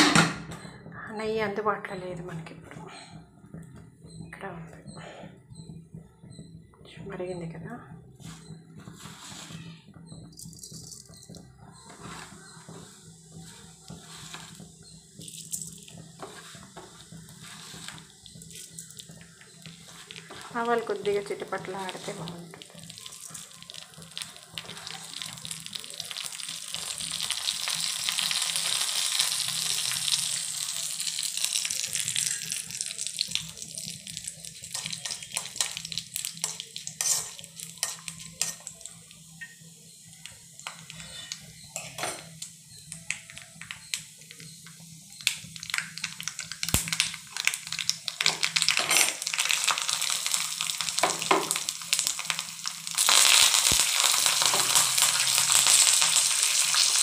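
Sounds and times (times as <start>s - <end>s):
spoon scraping a pan: 8.2s - 9.6s, 11.9s - 13.1s, 14.0s - 14.7s, 15.6s - 19.0s, 34.5s - 38.8s, 40.6s - 42.4s
seeds sizzling in hot oil: 8.2s - 57.0s.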